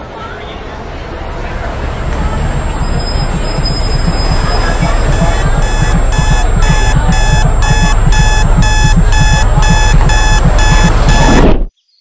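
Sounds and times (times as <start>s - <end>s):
low pulsing hum: 1.2s - 11.7s
alarm clock beeping rapidly: 2.4s - 11.6s.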